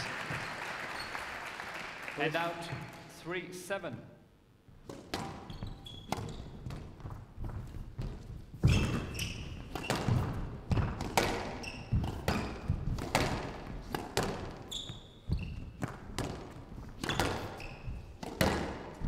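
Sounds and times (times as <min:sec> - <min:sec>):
shoes squeaking on court floor: 0:00.3 - 0:01.3, 0:04.7 - 0:19.0
squash ball hitting rackets and walls: 0:04.7 - 0:19.0.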